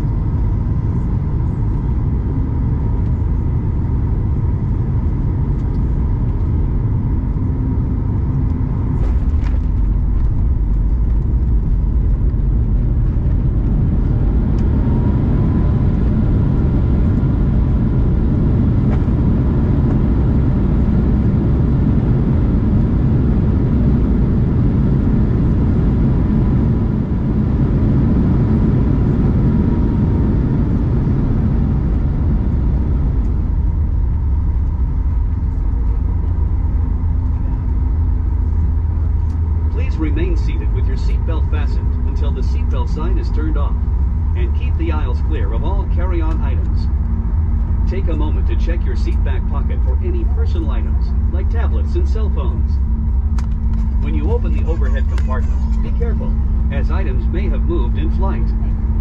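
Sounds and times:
heavy roar and rumble in cabin: 0.0 - 59.0
thin engine tone: 34.0 - 59.0.

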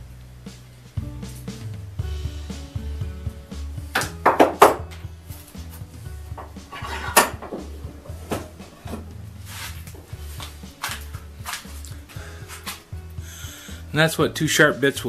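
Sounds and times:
background music with bass line: 0.0 - 15.0
tools clattering on wooden workbench: 6.4 - 9.1.

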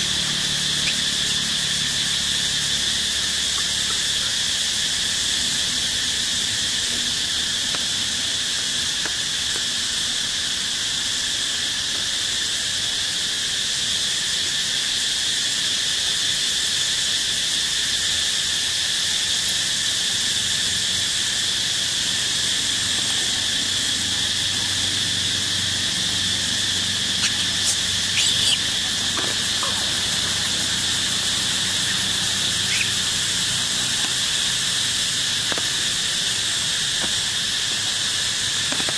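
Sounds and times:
insects droning: 0.0 - 38.9
short high squeaks: 27.2 - 29.8.

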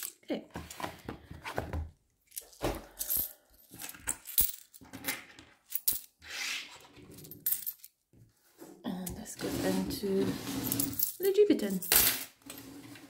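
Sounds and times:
coins clinking: 2.3 - 4.8, 5.7 - 6.1, 7.2 - 7.9, 10.6 - 12.4
coins sliding rustle: 9.6 - 11.2.

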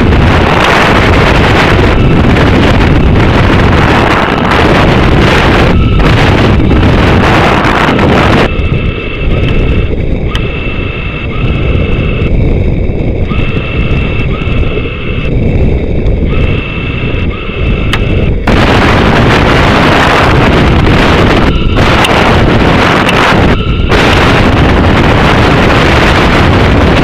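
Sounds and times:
electronic tone beeping: 0.0 - 27.0
loud rushing wind: 0.0 - 27.0
sharp clicks: 9.2 - 11.6, 16.2 - 18.4, 20.7 - 24.4.

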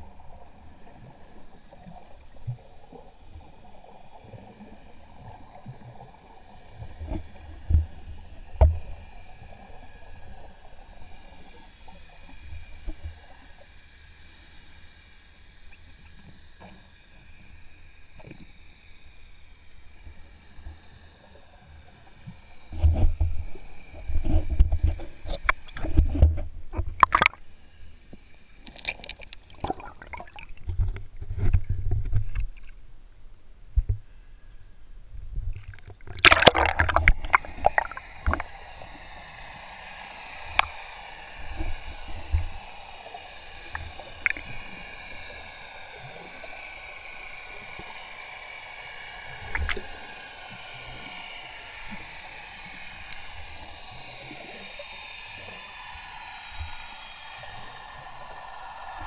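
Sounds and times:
faint wavering whine: 0.0 - 59.0
steady underwater hiss: 0.0 - 59.0
loud underwater splashing rush: 36.1 - 38.6.

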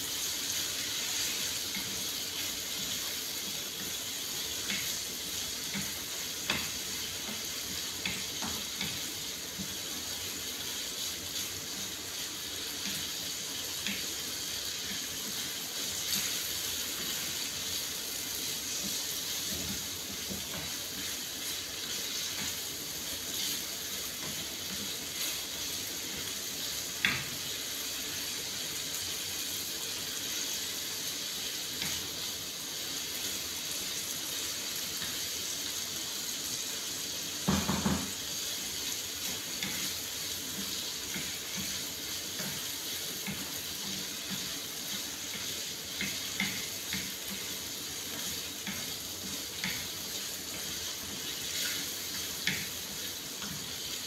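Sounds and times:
chicken sizzling in a frying pan: 0.0 - 54.0
spatula knocking and scraping pan: 18.6 - 22.7, 37.4 - 38.4, 39.2 - 47.5.

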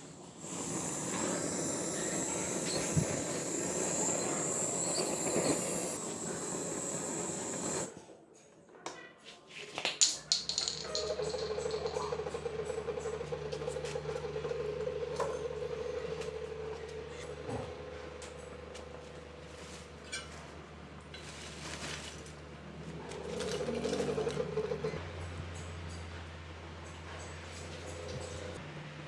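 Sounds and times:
steady hum: 0.0 - 7.9
butane torch hissing: 0.0 - 8.0.

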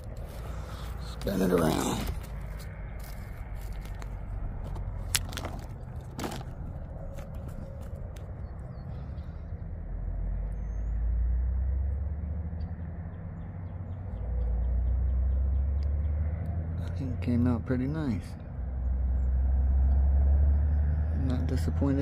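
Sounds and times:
wind rumbling on microphone: 2.0 - 10.9
bird chirp: 5.7 - 17.6.

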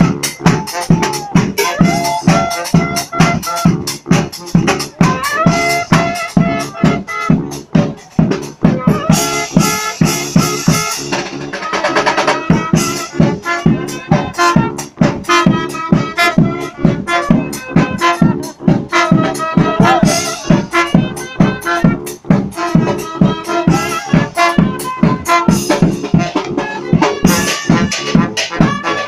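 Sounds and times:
brass band playing dance music: 0.0 - 29.0
loud steady drum beat: 0.0 - 29.0.

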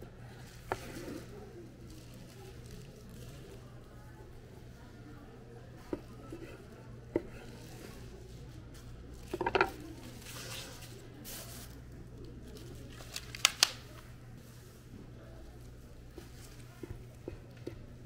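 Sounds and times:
plastic bag crinkling: 9.1 - 14.0.

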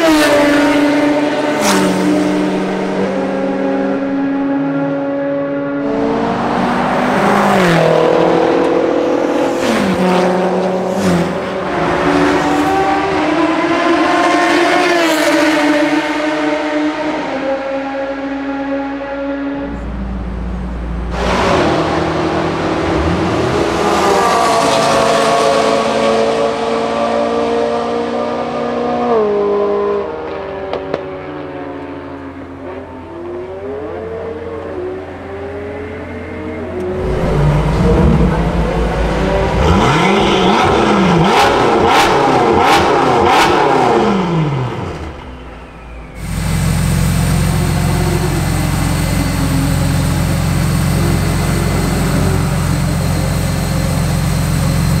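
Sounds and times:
cars passing at speed: 0.0 - 53.1
car engine accelerating hard: 0.0 - 55.0
car engine idling: 44.4 - 55.0.

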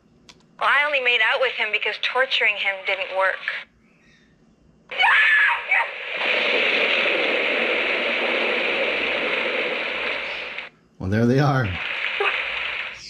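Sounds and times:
steady rushing noise: 5.9 - 10.7, 11.6 - 13.0.

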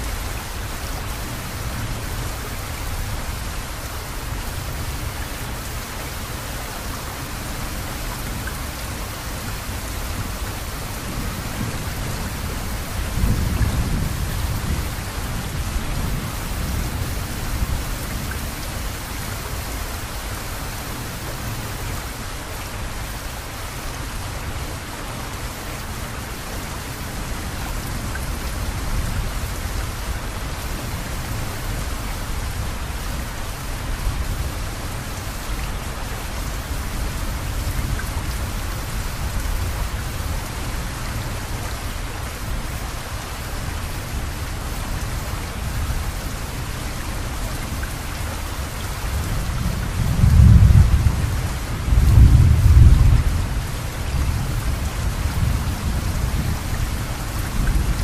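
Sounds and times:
steady rain: 0.0 - 58.0
thunder rumbling: 49.7 - 53.6.

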